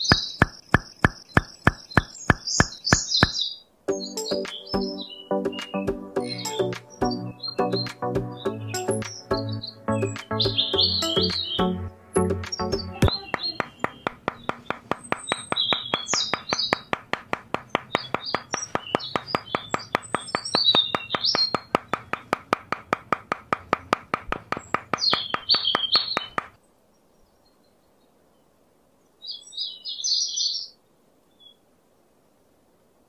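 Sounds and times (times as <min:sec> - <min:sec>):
fast even clicking: 0:00.0 - 0:03.4, 0:12.4 - 0:26.6
small birds chirping: 0:00.0 - 0:23.0, 0:23.6 - 0:28.4.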